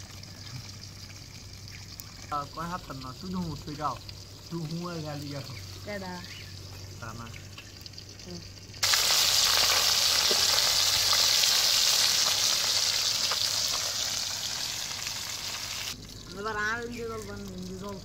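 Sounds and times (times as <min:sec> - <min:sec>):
fish sizzling in hot oil: 0:00.0 - 0:18.0.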